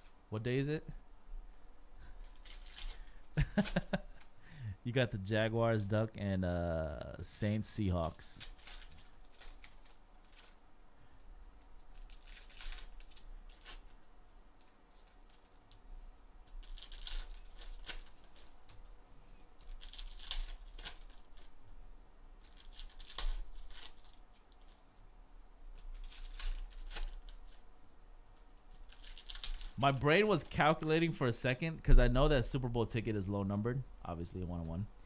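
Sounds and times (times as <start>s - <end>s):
foil wrappers tearing and crinkling: 2.2s - 4.3s, 8.0s - 10.6s, 11.8s - 15.8s, 16.4s - 18.8s, 19.6s - 21.6s, 22.4s - 24.8s, 25.8s - 27.6s, 28.6s - 30.9s.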